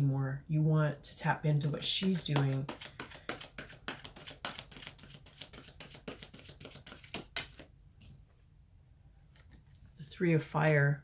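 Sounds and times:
cards being shuffled: 0:01.6 - 0:08.2, 0:09.3 - 0:10.0.

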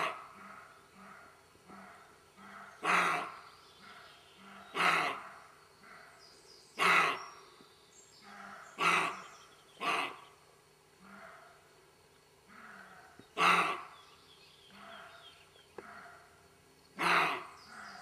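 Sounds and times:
deer barking: 0:00.0 - 0:06.1, 0:06.8 - 0:07.3, 0:08.2 - 0:10.3, 0:12.5 - 0:14.0, 0:17.0 - 0:18.0.

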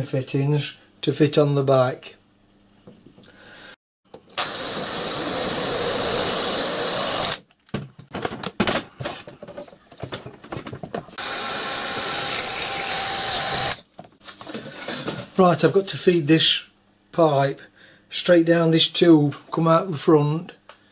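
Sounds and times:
cordless drill drilling metal: 0:04.4 - 0:07.4, 0:11.2 - 0:13.8
knocks and clatter: 0:07.6 - 0:11.2.

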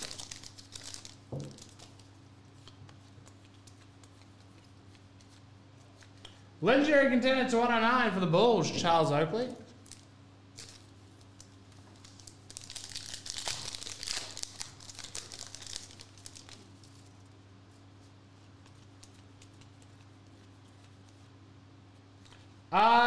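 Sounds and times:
foil wrapper crinkling: 0:00.0 - 0:02.1, 0:09.8 - 0:17.3
wrapper tearing: 0:00.0 - 0:02.1, 0:09.8 - 0:10.9, 0:12.0 - 0:17.0
low steady hum: 0:00.0 - 0:23.0.

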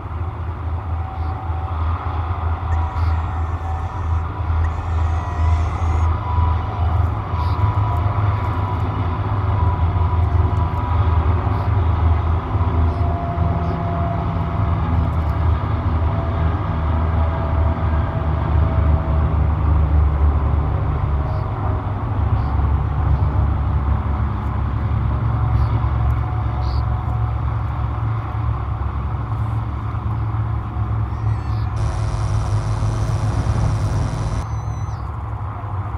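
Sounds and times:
faint humming tones: 0:00.8 - 0:07.9, 0:31.0 - 0:35.1
low engine-like rumble: 0:26.6 - 0:35.9.

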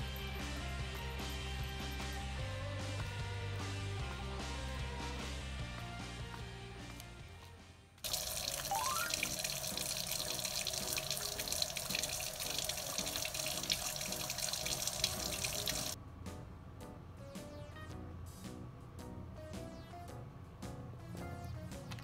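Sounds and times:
tap water running into sink: 0:08.0 - 0:16.0
brief rising tone: 0:08.7 - 0:09.1.

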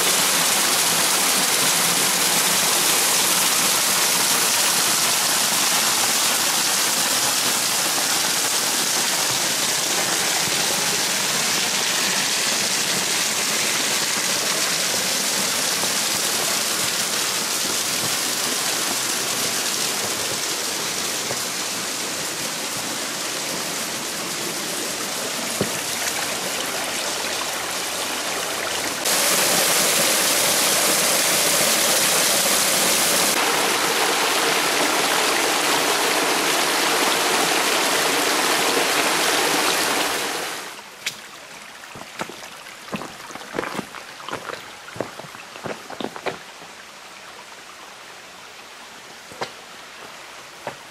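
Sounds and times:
stream pouring over rock: 0:00.0 - 0:47.8.

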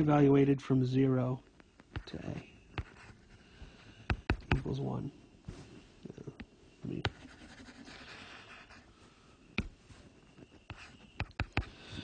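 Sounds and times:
stylus scratching on screen: 0:02.0 - 0:03.4, 0:04.1 - 0:04.9, 0:06.9 - 0:08.9, 0:10.2 - 0:12.0.

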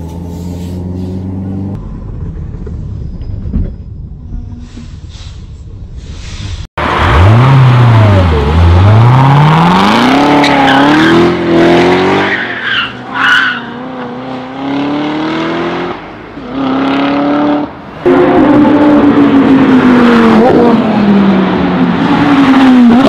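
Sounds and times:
car engine revving hard: 0:06.8 - 0:12.3
tires squealing: 0:08.9 - 0:14.2.

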